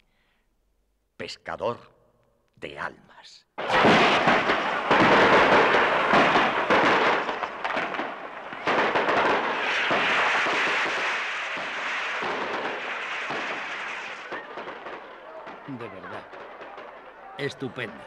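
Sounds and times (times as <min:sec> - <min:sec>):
firecracker bangs and crackling: 0:03.6 - 0:18.0.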